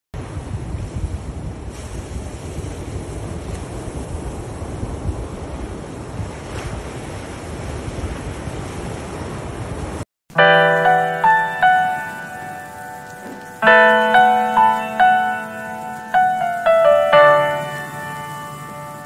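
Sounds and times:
wind rumbling on microphone: 0:00.2 - 0:10.0
ocean surf washing on beach: 0:00.2 - 0:19.0
piano music: 0:10.3 - 0:19.0.

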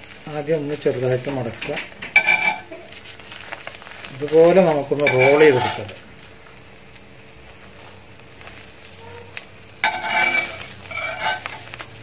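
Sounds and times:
omelette sizzling in oil: 0:00.0 - 0:12.0
spatula scraping pan: 0:01.6 - 0:03.0, 0:05.0 - 0:06.0, 0:09.8 - 0:11.8.

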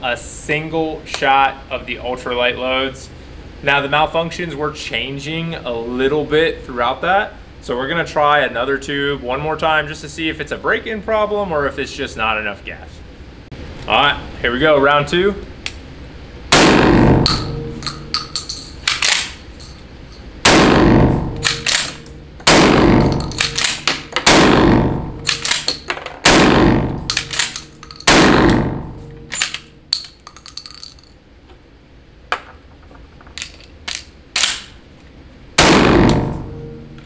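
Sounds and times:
shotgun shots: 0:16.5 - 0:17.5, 0:20.4 - 0:28.8, 0:35.6 - 0:36.5
gun handling clicks: 0:17.8 - 0:19.4, 0:21.4 - 0:22.1, 0:23.0 - 0:24.0, 0:25.3 - 0:25.9, 0:27.1 - 0:28.1, 0:29.3 - 0:31.1, 0:33.3 - 0:34.7.

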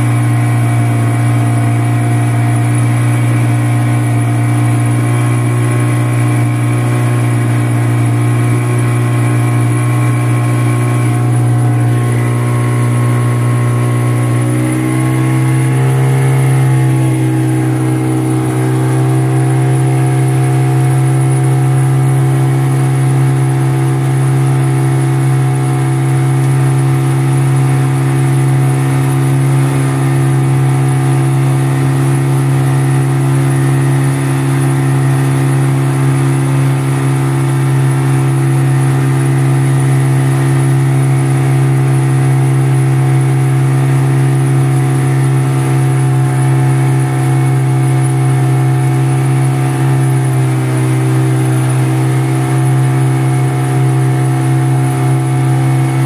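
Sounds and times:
outboard motor running: 0:00.0 - 0:56.0.

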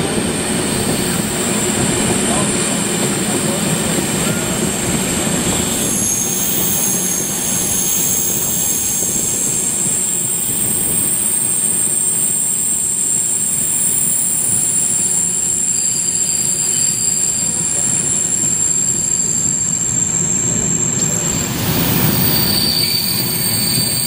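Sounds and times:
train wheels rumbling: 0:00.0 - 0:24.0
high-pitched wheel squeal: 0:00.4 - 0:24.0.

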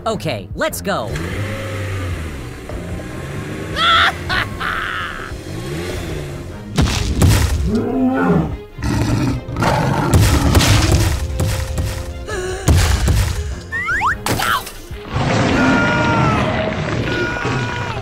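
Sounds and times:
background music: 0:00.0 - 0:18.0
dinosaur roar sound effect: 0:07.6 - 0:10.6, 0:15.1 - 0:18.0.

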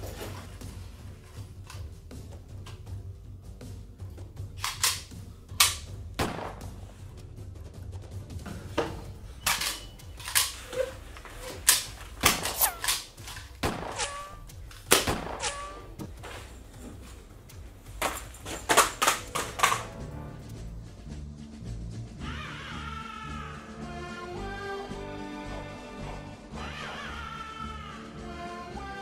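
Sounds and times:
gunshots: 0:04.6 - 0:06.8, 0:11.7 - 0:15.9.

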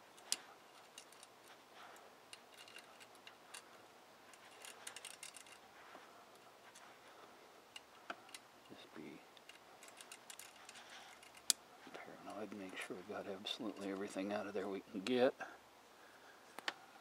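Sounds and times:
metal pick clicking and scraping: 0:00.1 - 0:05.6, 0:07.7 - 0:11.6.

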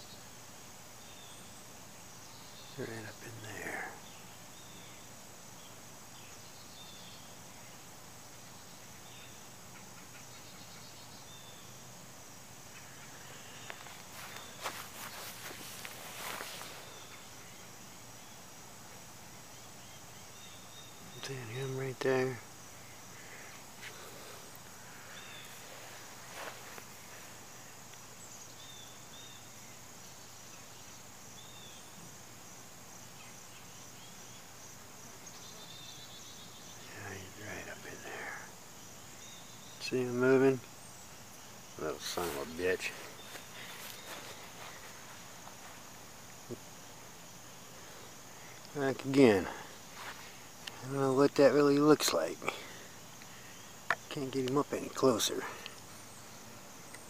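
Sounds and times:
steady outdoor hiss: 0:00.0 - 0:57.0
faint bird chirps: 0:01.0 - 0:11.9, 0:12.6 - 0:18.5, 0:19.5 - 0:32.1, 0:33.0 - 0:45.8.

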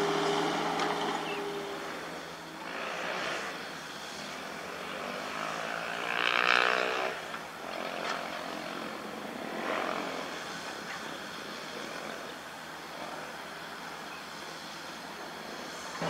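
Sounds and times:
excavator diesel engine running: 0:00.0 - 0:06.3.

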